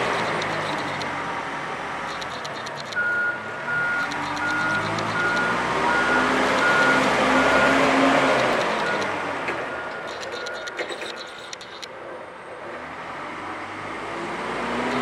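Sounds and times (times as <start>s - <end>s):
reversing alarm beeping: 2.1s - 11.9s
diesel engine revving: 2.8s - 10.5s, 12.8s - 15.0s.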